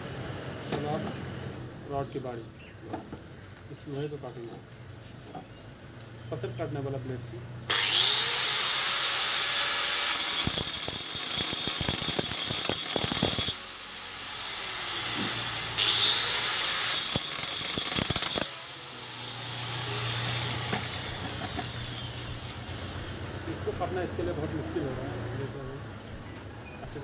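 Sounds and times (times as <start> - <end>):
blade grinding into iron rod: 7.7 - 22.7
cutting machine motor humming: 18.4 - 23.2.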